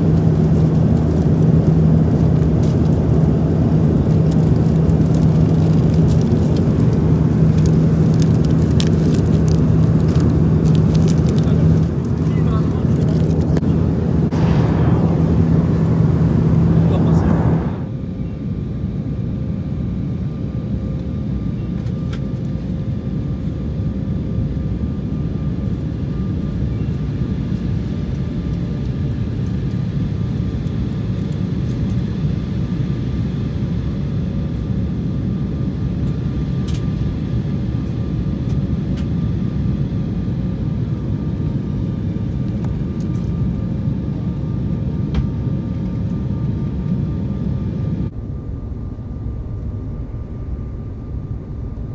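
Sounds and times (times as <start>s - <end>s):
airliner cabin drone: 0.0s - 51.9s
faint steady whine: 11.5s - 18.5s, 47.8s - 51.9s.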